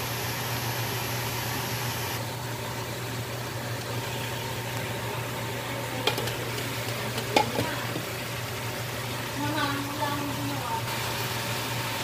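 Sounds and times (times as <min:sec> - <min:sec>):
glass lid clinking: 0:06.0 - 0:07.8.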